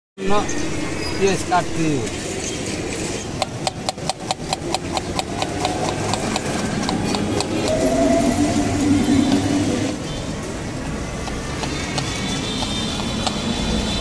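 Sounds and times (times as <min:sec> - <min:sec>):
steady tone: 0:06.6 - 0:10.3.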